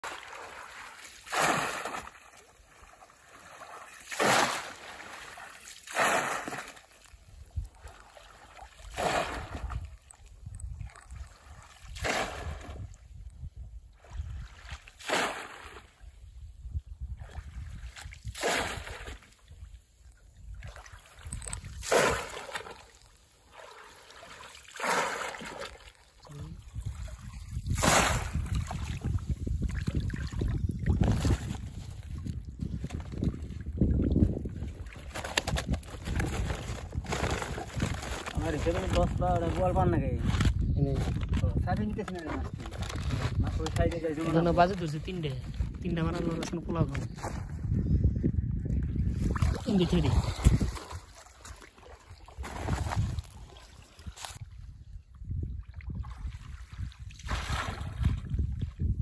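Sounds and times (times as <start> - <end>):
fish trap splashing into water: 0.1 - 2.2, 4.0 - 6.8, 15.0 - 15.8, 18.2 - 19.2, 21.6 - 22.9, 24.2 - 26.0, 27.6 - 29.1, 57.2 - 58.1
water sloshing: 20.6 - 39.1.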